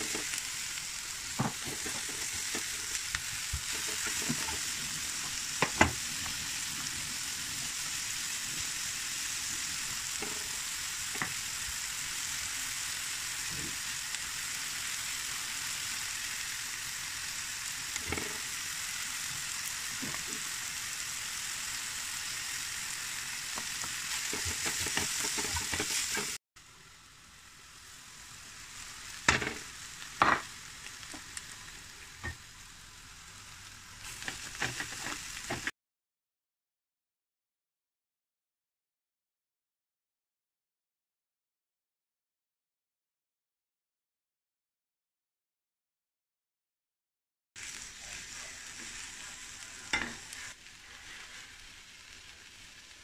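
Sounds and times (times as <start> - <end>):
onions sizzling in a frying pan: 0.0 - 35.7, 47.6 - 53.0.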